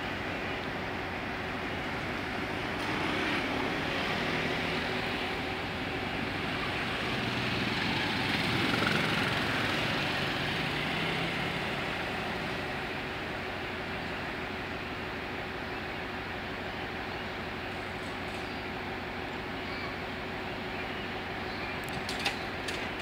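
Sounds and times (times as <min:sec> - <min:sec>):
motorcycle engines passing: 0:02.6 - 0:13.3.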